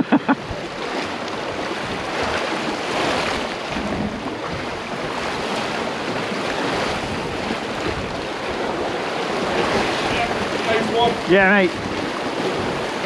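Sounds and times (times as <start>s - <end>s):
surf washing against rocks: 0.0s - 13.0s.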